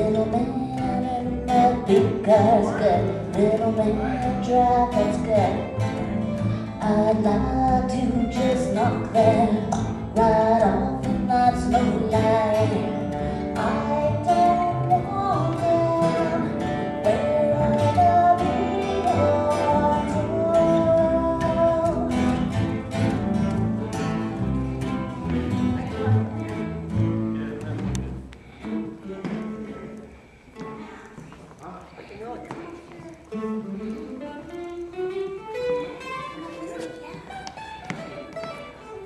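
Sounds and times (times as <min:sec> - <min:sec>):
woman singing: 0:00.0 - 0:22.6
acoustic string band playing: 0:00.0 - 0:39.0.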